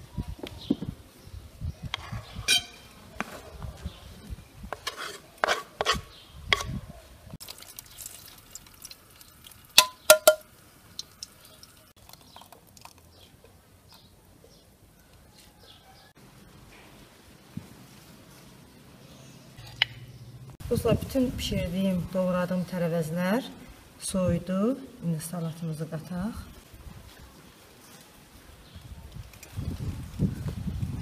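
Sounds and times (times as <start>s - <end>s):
metal can clinking on strainer: 9.8s - 10.4s.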